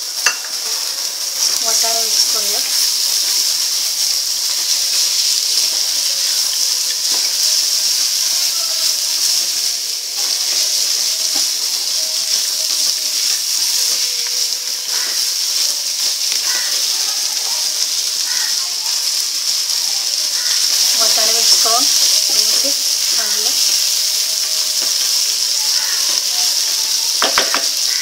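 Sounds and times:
food sizzling in hot oil: 0:00.0 - 0:28.0.

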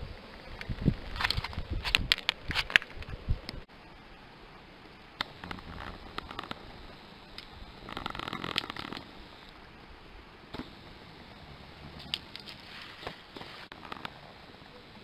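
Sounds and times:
dry twigs crunching and crackling: 0:01.0 - 0:03.1, 0:07.4 - 0:09.1, 0:12.0 - 0:14.2.

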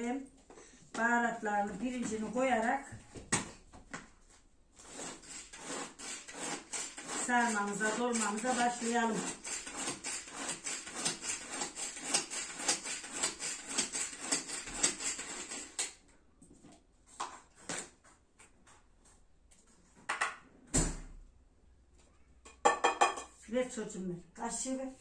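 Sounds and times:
knife cutting vegetable: 0:04.8 - 0:16.0.

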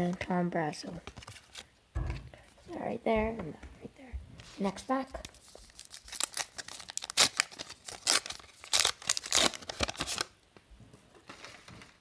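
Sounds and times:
card pack wrapper ripping: 0:05.2 - 0:10.4.

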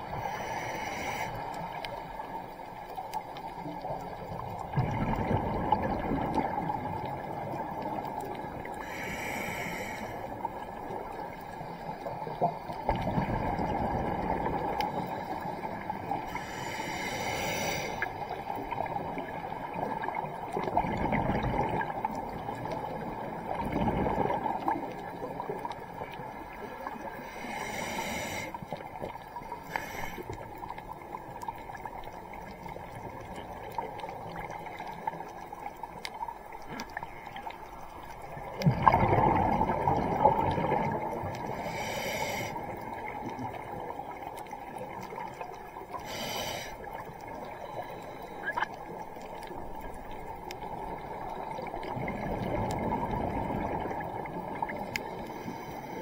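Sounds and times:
regulator inhale hiss: 0:00.0 - 0:01.8, 0:08.6 - 0:10.5, 0:14.9 - 0:18.4, 0:26.9 - 0:28.8, 0:29.6 - 0:30.5, 0:41.4 - 0:43.0, 0:45.9 - 0:48.5, 0:55.0 - 0:56.0.

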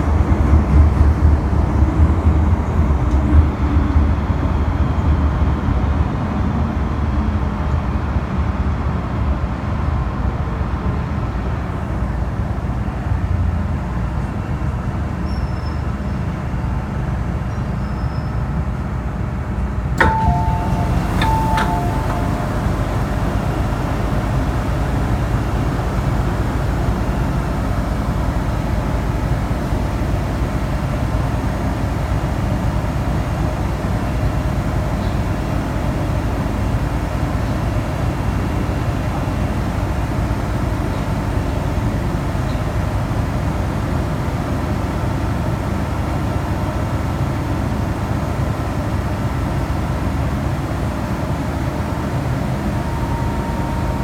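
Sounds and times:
train carriage rumble and hiss: 0:00.0 - 0:54.0.

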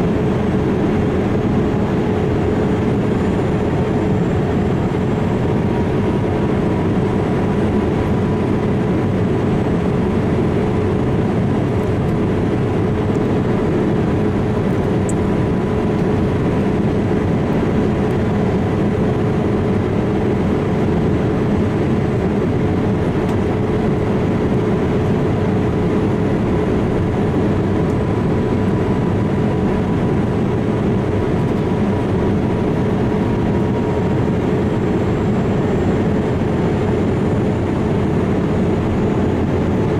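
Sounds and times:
airliner rumble: 0:00.0 - 0:39.9.

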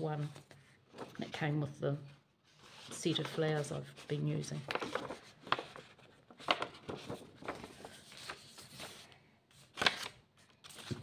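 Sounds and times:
paper pages rustling: 0:02.5 - 0:11.0.

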